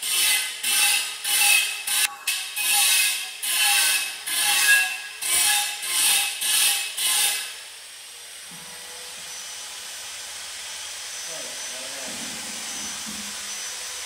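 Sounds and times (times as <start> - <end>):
hand tool scraping a surface: 0.0 - 7.6.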